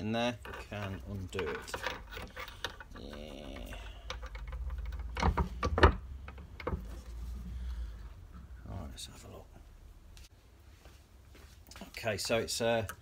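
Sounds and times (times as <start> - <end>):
metallic clicks and knocks: 0.3 - 7.1
valve creaking: 0.4 - 7.0.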